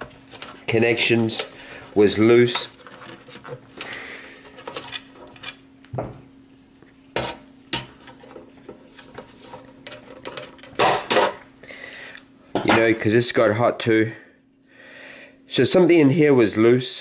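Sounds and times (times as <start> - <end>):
scraping rustle: 0.0 - 5.6
faint steady hum: 0.0 - 17.0.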